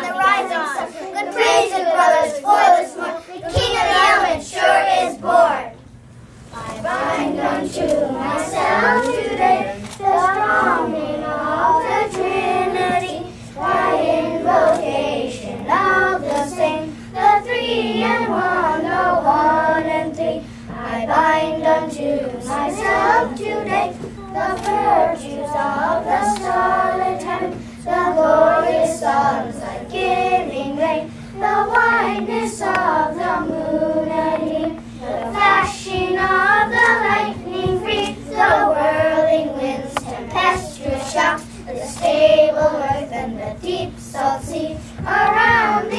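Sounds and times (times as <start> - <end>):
children singing in unison: 0.0 - 5.8, 6.6 - 45.9.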